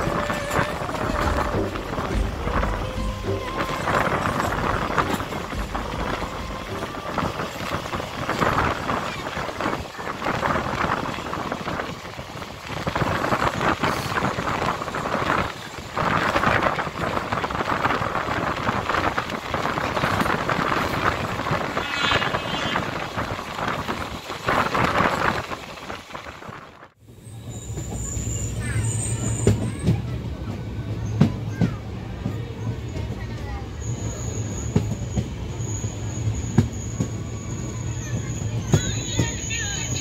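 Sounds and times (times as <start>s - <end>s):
rushing wind: 0.0s - 40.0s.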